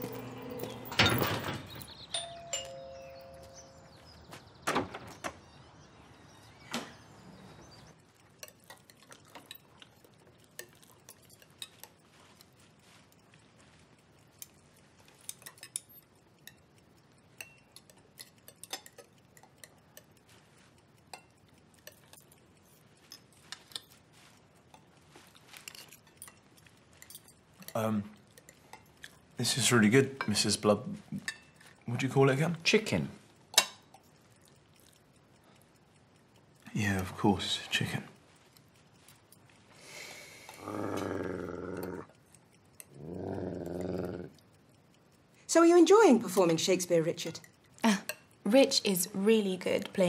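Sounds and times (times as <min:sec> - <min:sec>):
two-note doorbell chime: 0:02.2 - 0:03.9
cutlery clinking on plates: 0:17.3 - 0:20.2, 0:33.5 - 0:34.1.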